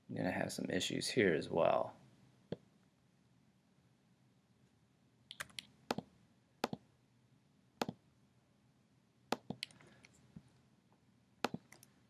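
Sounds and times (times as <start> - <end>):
mouse and keyboard clicks: 5.3 - 6.8.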